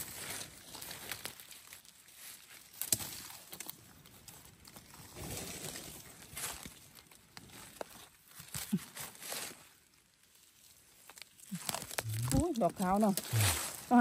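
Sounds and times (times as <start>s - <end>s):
dry leaves and twigs rustling: 0.0s - 14.0s
twig snapping: 2.8s - 3.8s, 11.0s - 13.8s.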